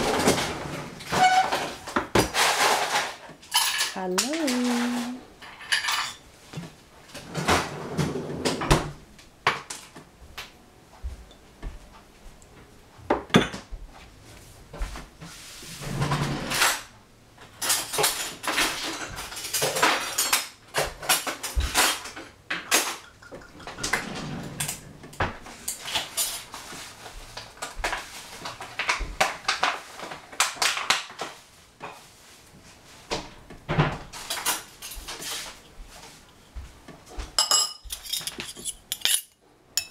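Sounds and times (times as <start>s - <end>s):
dishes and cutlery clinking: 1.2s - 6.2s, 17.6s - 26.9s, 37.2s - 39.9s.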